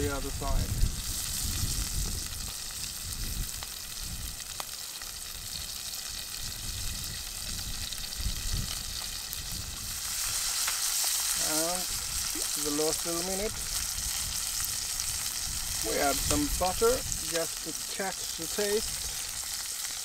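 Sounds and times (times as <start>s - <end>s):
chicken sizzling in hot oil: 0.0s - 20.0s.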